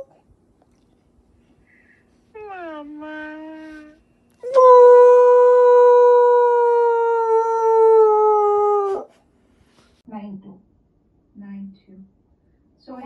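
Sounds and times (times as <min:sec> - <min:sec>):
puppy howling: 0:02.4 - 0:09.1.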